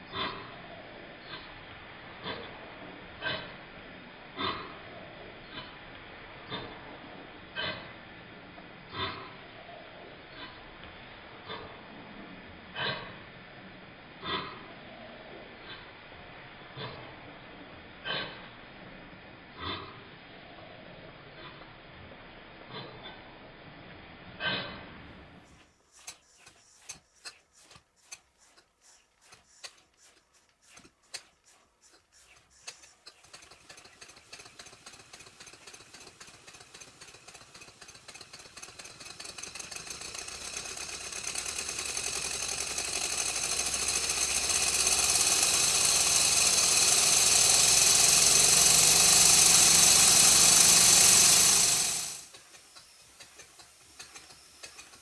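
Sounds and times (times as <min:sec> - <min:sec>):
model steam engine ticking: 0:25.6 - 0:55.0.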